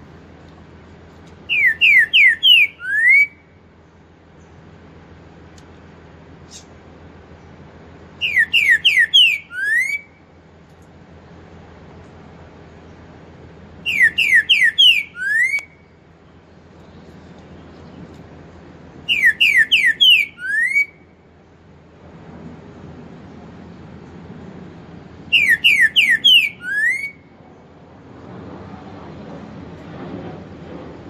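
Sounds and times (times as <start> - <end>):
bird whistling song: 1.4 - 3.5, 8.2 - 10.2, 13.8 - 16.0, 19.0 - 21.1, 25.3 - 27.4.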